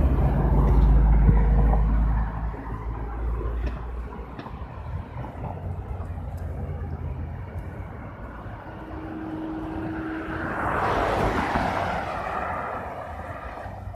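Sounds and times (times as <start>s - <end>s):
passing vehicle engine and tyre roar: 0.0s - 13.9s.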